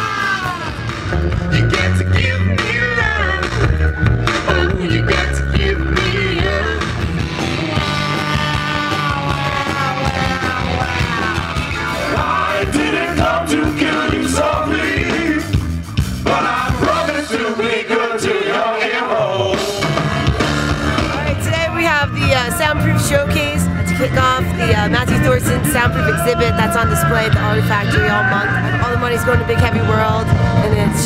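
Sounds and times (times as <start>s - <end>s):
rock band playing: 0.0s - 31.0s
person singing: 1.4s - 15.5s, 24.4s - 31.0s.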